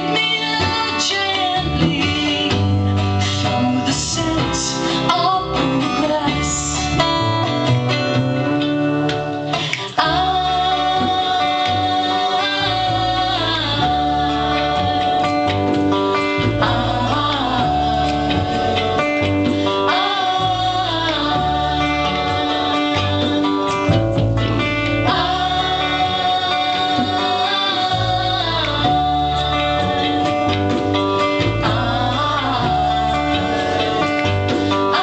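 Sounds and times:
acoustic guitar: 0.0 - 35.0
double bass: 0.0 - 35.0
woman singing long notes: 9.8 - 15.7.

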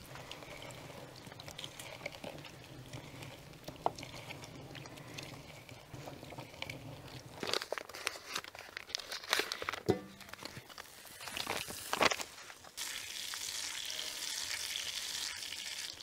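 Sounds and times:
wet squeezing of lemon: 0.0 - 7.7.

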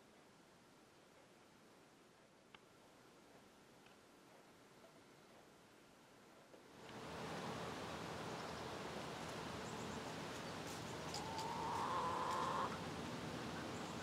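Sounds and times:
steady outdoor hiss: 0.0 - 14.0
hen calling: 10.8 - 12.8.

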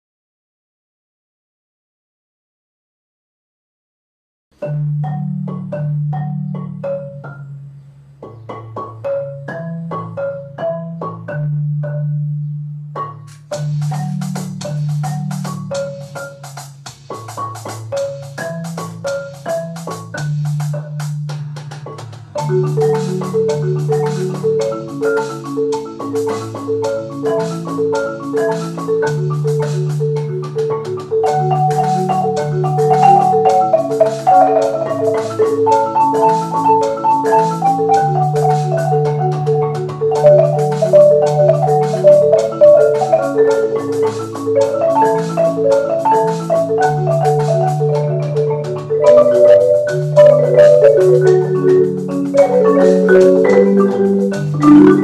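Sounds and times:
marimbas playing: 4.6 - 55.0
electronic drums with cymbals: 13.2 - 47.7.

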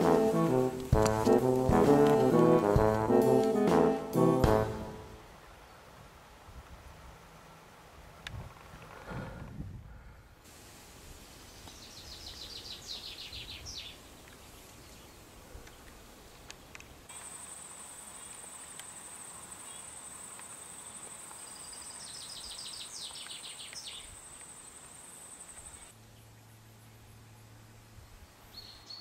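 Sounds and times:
songbird singing: 11.4 - 27.5, 28.4 - 29.0.

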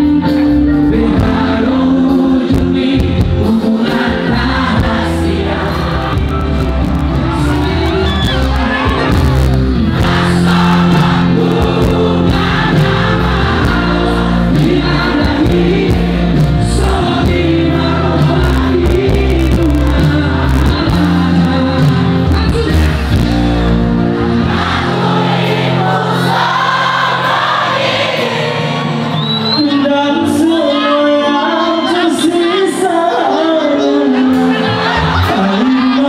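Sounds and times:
crowd singing along: 0.0 - 36.0
live band music: 0.0 - 36.0.

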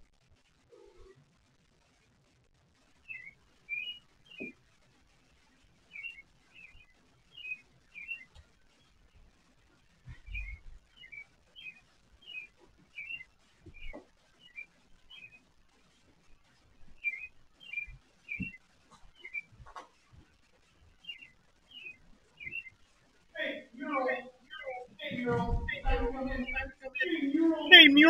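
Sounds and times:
faint bird chirping: 2.9 - 28.0
soft low thumps: 10.0 - 11.2, 12.6 - 15.2, 16.4 - 20.3, 24.7 - 27.2.

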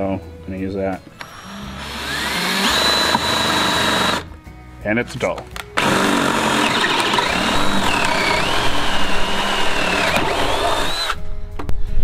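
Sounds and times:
cordless drill whining: 1.2 - 4.3, 5.8 - 11.2.

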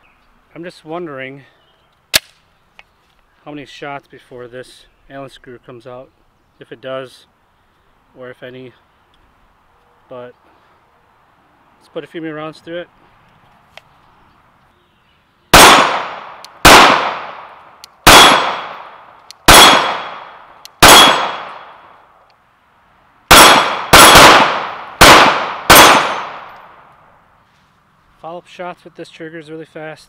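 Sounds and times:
pistol shots with echo: 15.5 - 21.8, 23.3 - 26.6.

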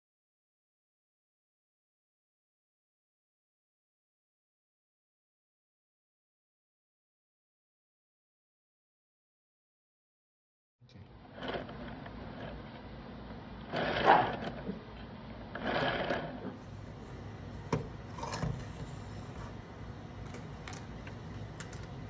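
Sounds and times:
wooden gears whirring: 11.3 - 12.8, 13.6 - 16.6.

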